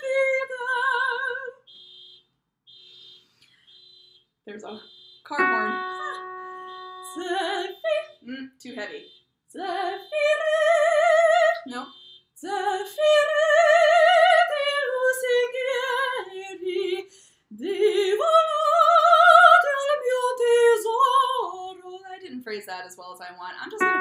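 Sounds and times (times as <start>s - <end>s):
soprano singing an aria: 5.3s - 11.8s, 12.4s - 22.2s.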